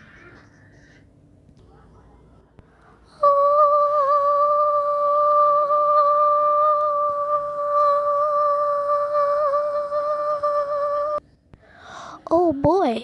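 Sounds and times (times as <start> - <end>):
person humming a high note: 3.2 - 11.2.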